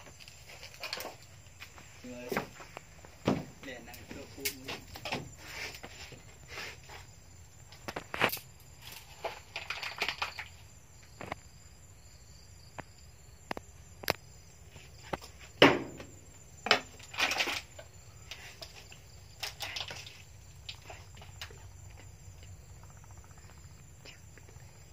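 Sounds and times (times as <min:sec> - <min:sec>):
rustling and scraping: 0:00.0 - 0:11.4, 0:14.6 - 0:22.2
sharp knocks on wood: 0:03.2 - 0:03.6, 0:15.6 - 0:16.9.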